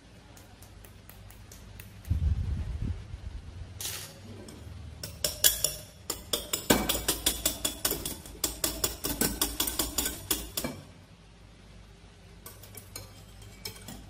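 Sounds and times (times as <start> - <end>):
whisk clinking against glass bowl: 5.0 - 10.8, 12.4 - 14.0.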